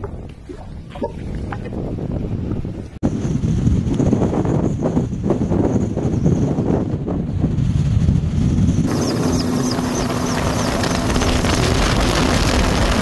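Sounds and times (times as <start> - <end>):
wind on microphone: 0.0 - 13.0
helicopter rotor rumble: 4.6 - 13.0
helicopter cabin noise with hum: 8.5 - 13.0.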